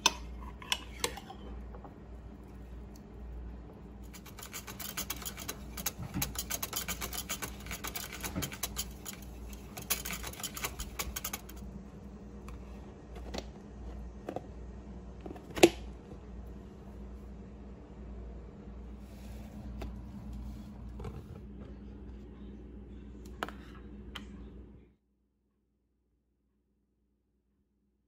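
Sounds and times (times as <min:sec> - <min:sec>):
whisk clicking against plastic tub: 0:04.1 - 0:11.6.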